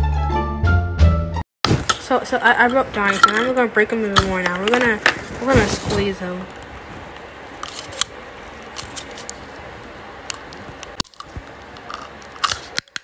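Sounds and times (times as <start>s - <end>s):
plastic ornament crackling and clicking: 6.4s - 13.0s.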